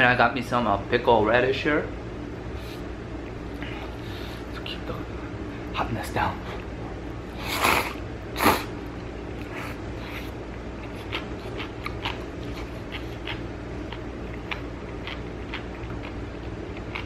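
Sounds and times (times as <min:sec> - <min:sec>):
person slurping noodles: 0:07.4 - 0:08.7
wet chewing mouth clicks: 0:09.4 - 0:17.0.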